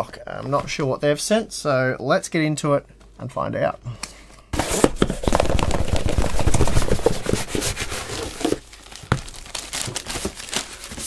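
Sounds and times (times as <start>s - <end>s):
packaging tearing and crinkling: 4.6s - 11.0s.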